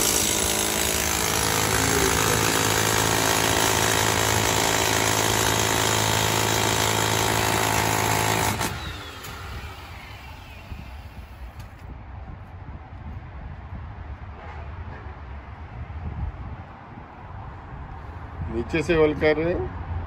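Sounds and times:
demolition hammer hammering ground: 0:00.0 - 0:09.7.

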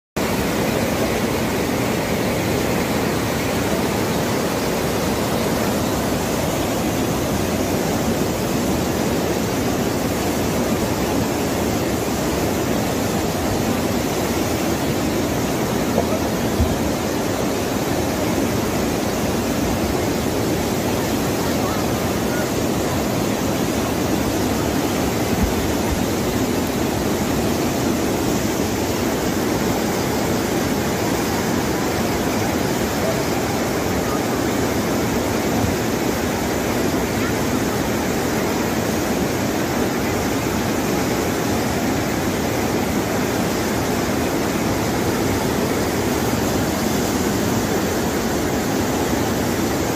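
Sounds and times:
rushing water roar: 0:00.2 - 0:49.9.

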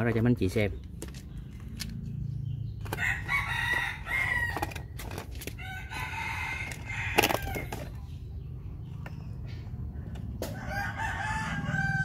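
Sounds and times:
rooster crowing: 0:03.0 - 0:04.8, 0:05.6 - 0:07.8, 0:10.5 - 0:12.0.

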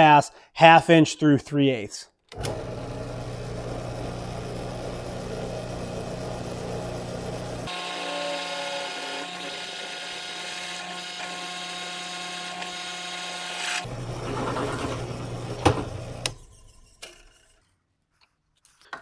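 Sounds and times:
power drill cutting steel: 0:07.4 - 0:16.5.

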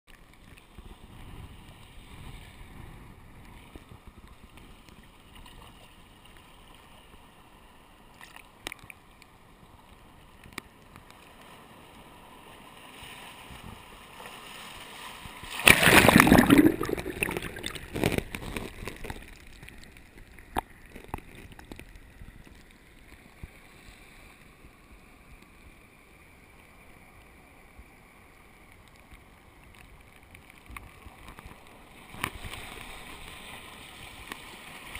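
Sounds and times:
water sloshing in tide pool: 0:00.1 - 0:25.2, 0:26.6 - 0:34.9
wave rushing in: 0:15.5 - 0:18.1.

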